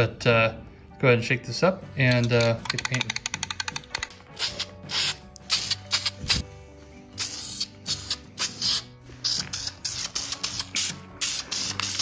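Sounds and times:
aerosol spray hissing bursts: 0:04.3 - 0:06.5, 0:07.1 - 0:12.0.

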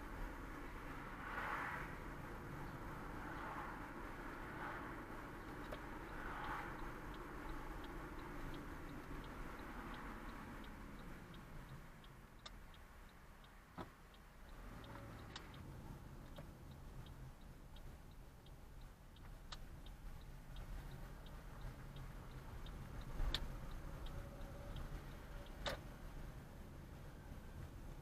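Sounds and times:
engine and road noise: 0:00.0 - 0:28.0
car turn signal ticking: 0:02.0 - 0:28.0.

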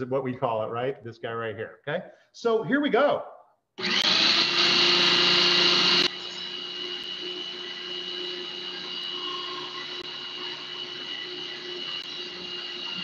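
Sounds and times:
food processor motor whining: 0:03.8 - 0:13.0.

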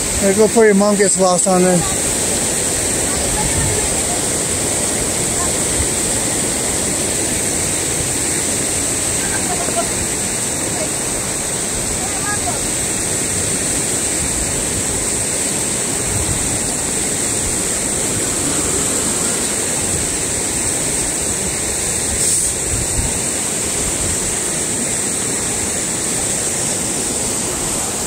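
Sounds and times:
river rushing over rocks: 0:00.0 - 0:28.0.

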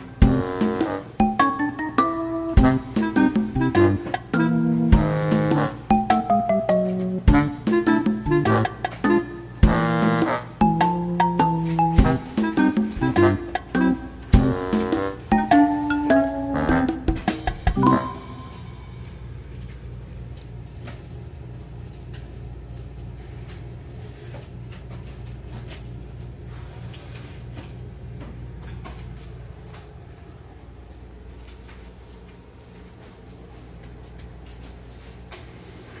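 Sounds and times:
steady low hum: 0:16.5 - 0:36.0.

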